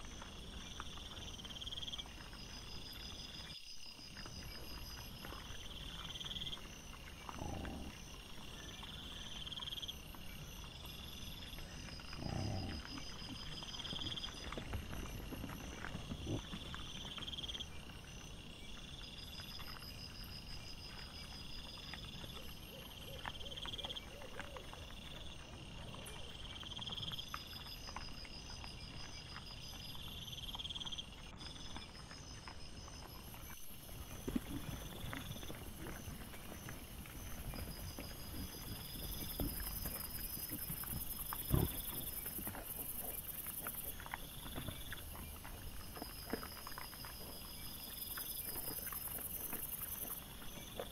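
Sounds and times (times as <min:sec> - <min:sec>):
boar rustling and snuffling: 0:00.0 - 0:50.9
night insects trilling: 0:00.0 - 0:50.9
boar grunts: 0:07.2 - 0:08.2, 0:12.1 - 0:13.5, 0:40.5 - 0:43.2.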